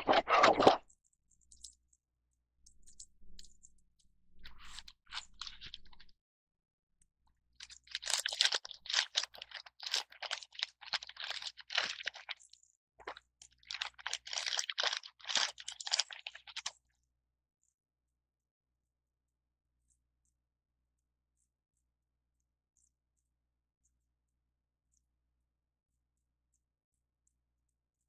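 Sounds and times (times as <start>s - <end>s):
plastic bag crinkling: 7.6s - 12.4s, 13.6s - 16.7s.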